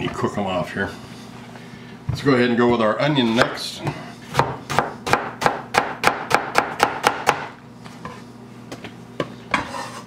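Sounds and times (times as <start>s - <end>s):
knife chopping onion on board: 4.3s - 7.5s.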